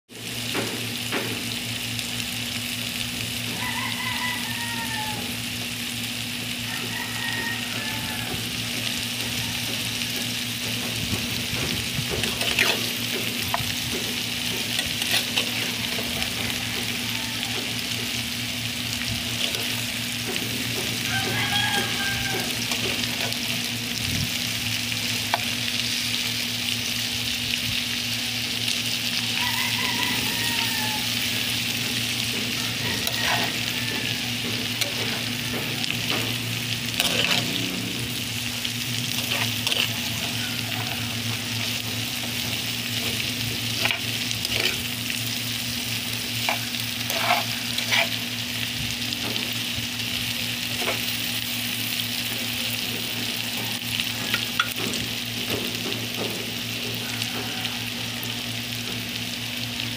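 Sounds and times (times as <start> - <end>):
food sizzling in oil: 0.1 - 59.9
metal spatula scraping pan: 9.8 - 17.0, 31.1 - 38.2, 39.1 - 40.0, 41.3 - 44.9, 46.4 - 48.3.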